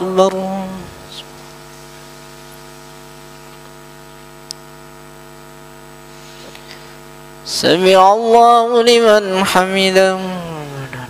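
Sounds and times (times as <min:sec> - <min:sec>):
electrical mains hum: 0:00.0 - 0:11.0
faint hiss: 0:06.0 - 0:07.7.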